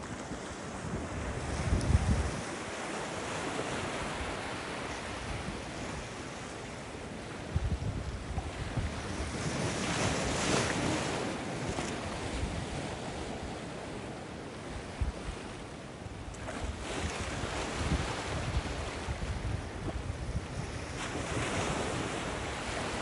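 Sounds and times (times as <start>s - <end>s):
waves breaking: 0.0s - 15.7s, 16.3s - 23.0s
wind buffeting microphone: 0.7s - 2.9s, 3.8s - 6.2s, 7.2s - 13.9s, 16.1s - 23.0s.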